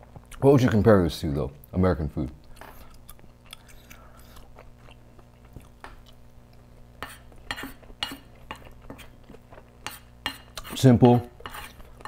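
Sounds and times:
wooden spoon scraping a plate: 0:07.0 - 0:09.2, 0:09.8 - 0:12.0.

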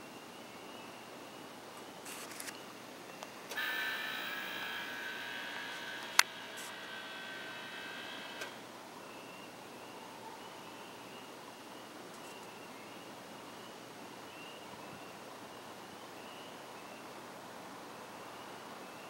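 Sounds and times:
sharp click: 0:03.2 - 0:08.6
camera zoom motor whining: 0:03.5 - 0:08.6.

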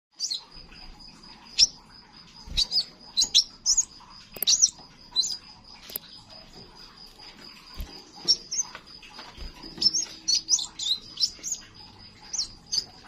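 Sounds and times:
bird high sharp chirps: 0:00.2 - 0:06.3, 0:07.2 - 0:13.0
thin steady high tone: 0:00.2 - 0:13.0.

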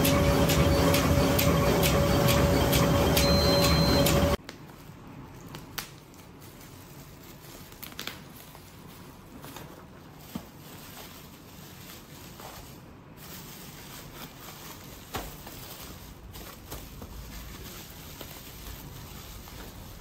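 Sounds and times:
bubble-wrap bag crinkling: 0:05.5 - 0:20.0.

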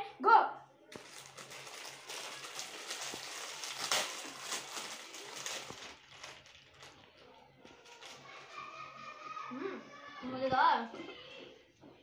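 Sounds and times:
plastic packets crinkling: 0:00.9 - 0:09.0.

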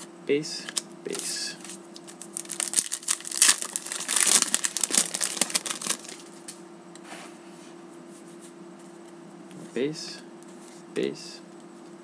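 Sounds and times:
foil wrapper crinkling: 0:00.7 - 0:06.4.

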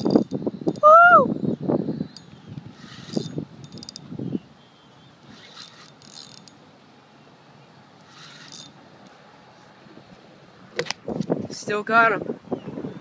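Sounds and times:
fishing reel whirring: 0:00.0 - 0:01.2, 0:02.0 - 0:04.3, 0:05.1 - 0:06.6, 0:08.0 - 0:08.8.

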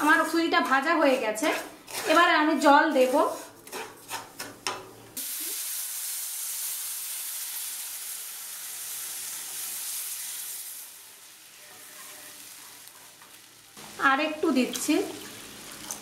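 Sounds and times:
water hissing in hot pan: 0:05.2 - 0:12.9, 0:13.5 - 0:16.0.

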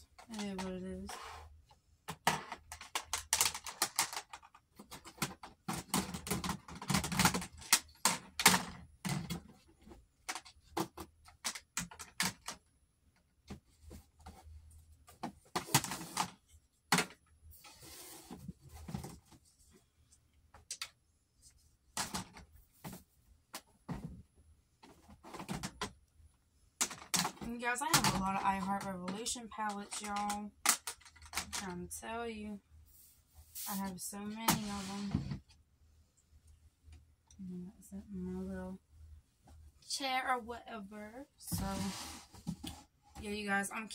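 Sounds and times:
makeup palettes clicking and clattering: 0:02.1 - 0:09.6, 0:10.2 - 0:12.6, 0:26.8 - 0:31.8.

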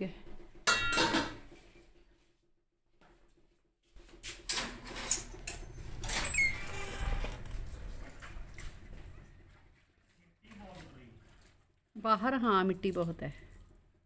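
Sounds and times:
screen door squeaking: 0:04.8 - 0:07.7.

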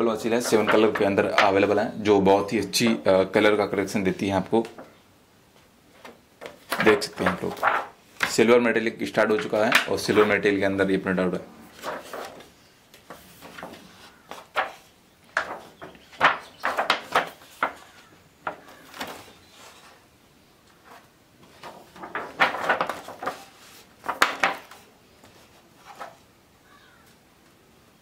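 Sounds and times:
album pages turning: 0:00.2 - 0:01.8, 0:05.6 - 0:08.5, 0:09.1 - 0:10.5, 0:11.7 - 0:20.1, 0:20.7 - 0:26.3.

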